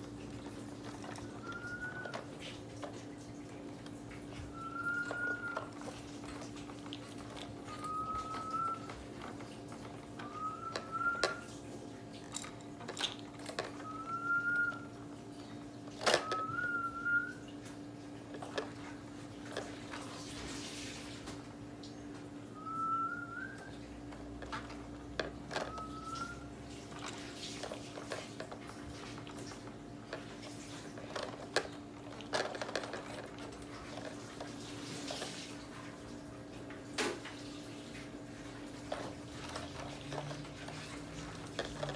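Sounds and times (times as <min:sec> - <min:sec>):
plastic toys clicking and rattling: 0:00.0 - 0:17.4, 0:18.1 - 0:20.5, 0:23.6 - 0:35.8, 0:38.3 - 0:41.9.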